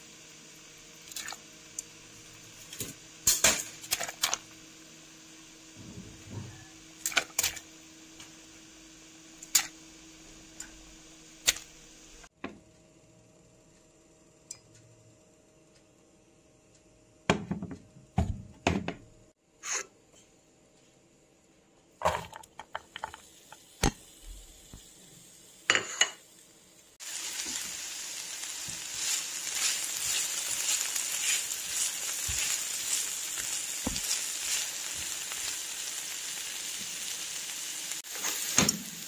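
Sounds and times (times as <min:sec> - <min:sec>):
kitchen utensils and dishes clinking: 0:25.7 - 0:26.2.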